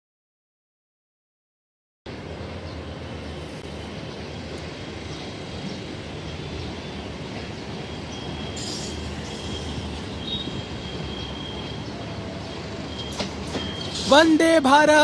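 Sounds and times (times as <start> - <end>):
electric train rumbling: 2.1 - 15.0
high wheel squeal: 7.7 - 14.4.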